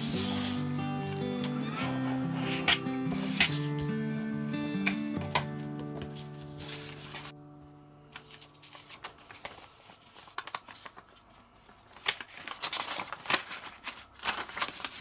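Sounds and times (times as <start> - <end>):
paper rustling and crinkling: 0.0 - 4.0, 4.8 - 7.4, 8.1 - 15.0
sharp paper crackles and taps: 2.5 - 3.9, 4.8 - 7.3, 8.1 - 15.0.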